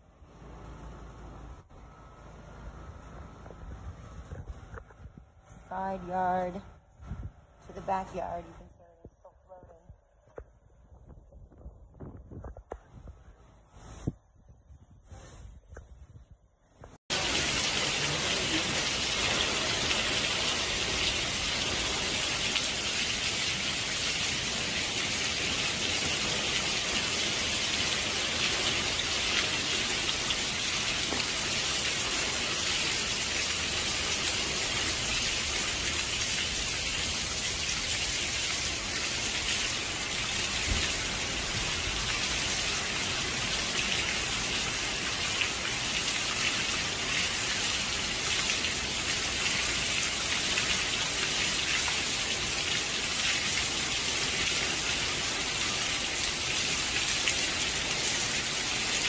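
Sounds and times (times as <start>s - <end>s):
heavy rain hissing: 17.1s - 59.0s.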